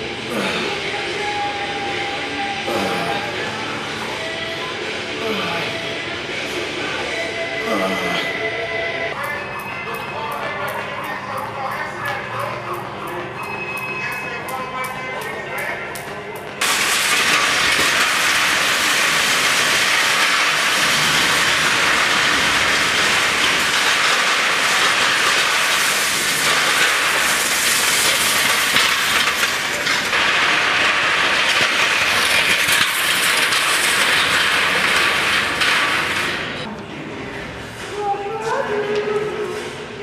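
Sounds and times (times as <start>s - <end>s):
metal runners scraping on concrete: 16.6s - 36.7s.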